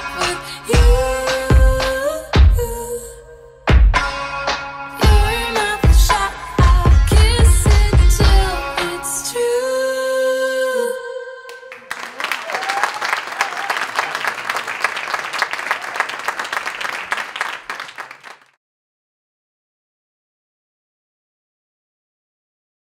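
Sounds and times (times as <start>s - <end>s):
audience applause: 11.7s - 18.6s.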